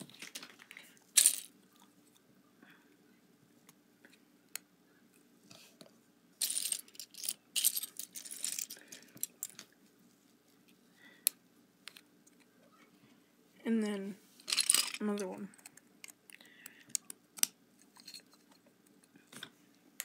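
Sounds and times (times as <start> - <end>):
plastic bricks clattering: 0.1 - 1.5, 6.4 - 9.6, 14.4 - 15.2.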